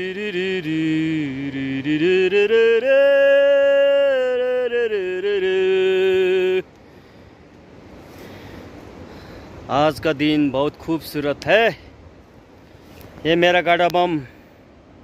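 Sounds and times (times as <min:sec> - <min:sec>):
slow chant-like vocal melody: 0:00.0 - 0:06.7
faint outdoor ambience: 0:00.0 - 0:15.0.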